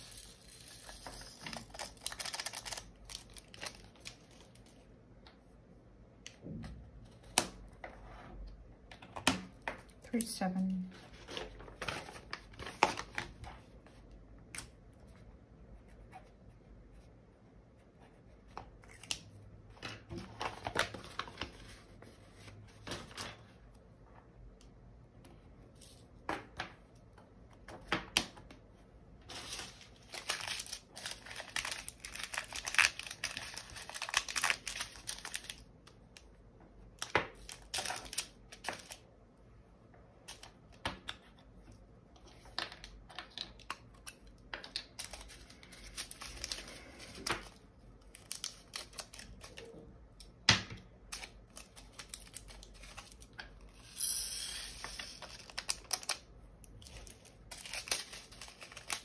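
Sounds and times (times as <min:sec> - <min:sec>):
small beads clicking and rattling: 0:00.0 - 0:02.8
plastic bags crinkling: 0:00.0 - 0:04.6, 0:29.3 - 0:35.6, 0:54.9 - 0:59.0.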